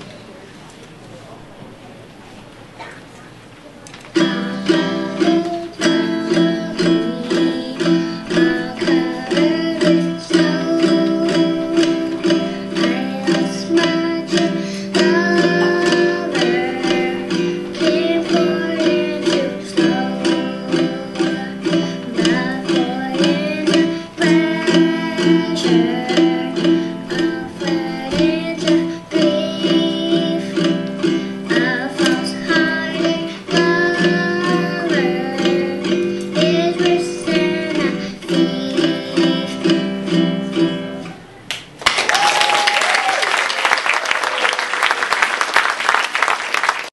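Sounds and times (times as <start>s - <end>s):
ukulele strumming: 4.1s - 41.4s
child singing: 4.2s - 40.8s
audience applause: 41.8s - 46.9s.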